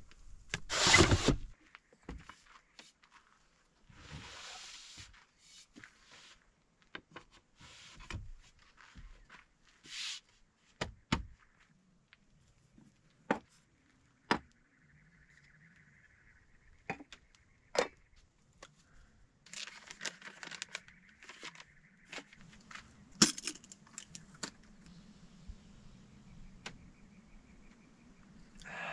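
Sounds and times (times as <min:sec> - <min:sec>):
packet crinkling: 0:19.5 - 0:21.7.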